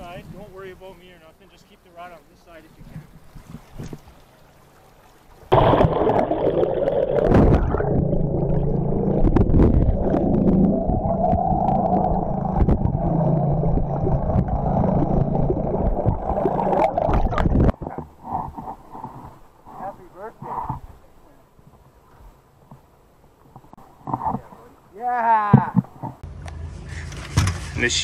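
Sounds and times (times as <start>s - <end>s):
muffled underwater rushing water: 0.0s - 25.0s
steady low hum: 5.6s - 17.7s.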